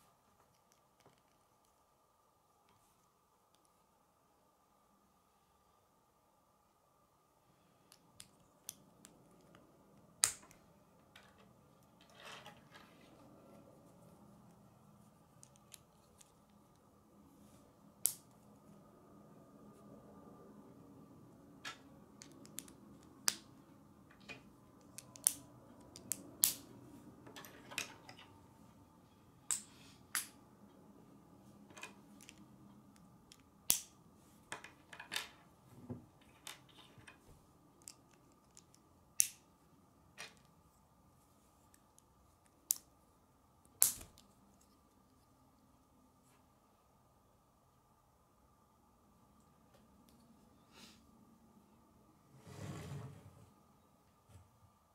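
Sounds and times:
plastic pieces snapping together: 24.8 - 26.7, 33.3 - 34.0, 43.8 - 44.3.

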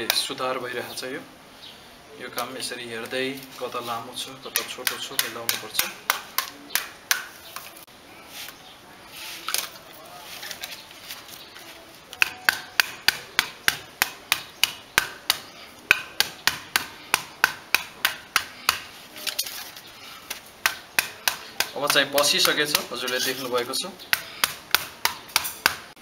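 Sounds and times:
wooden block knocking bamboo sticks: 4.5 - 7.7, 12.1 - 19.4, 20.3 - 26.0.

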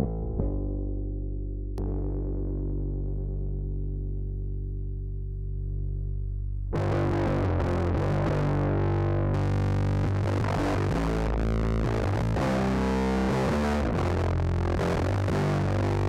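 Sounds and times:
distorted synth-like electric guitar: 6.8 - 16.0.

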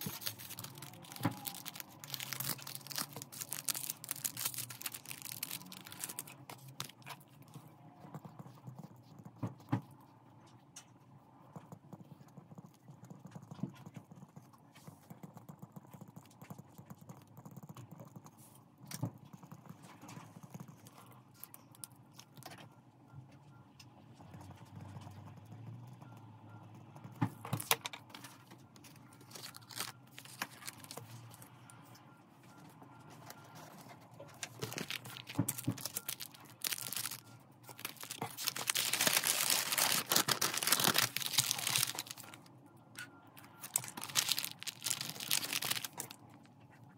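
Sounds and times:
paper rustling: 0.0 - 7.1, 29.3 - 31.0, 34.4 - 37.2, 37.8 - 42.4, 43.6 - 46.2.

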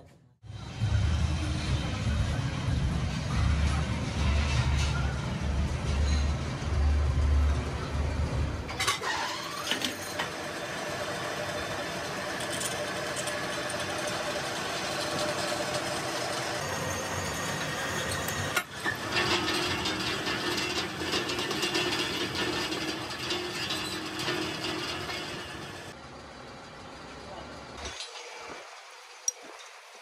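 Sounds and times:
workshop machinery running: 0.4 - 30.0
machinery rattling and ticking: 9.8 - 26.0.

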